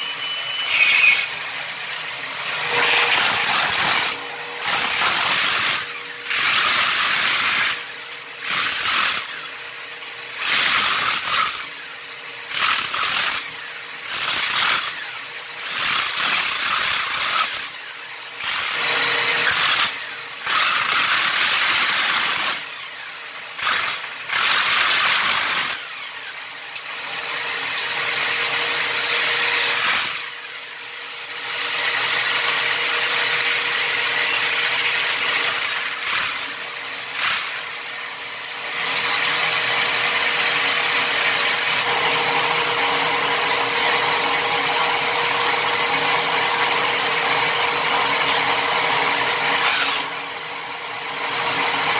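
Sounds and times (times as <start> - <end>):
electric chipping hammer breaking tile: 2.7 - 9.6, 10.4 - 11.8, 12.5 - 26.9, 27.6 - 30.4, 31.9 - 37.8, 49.3 - 50.2.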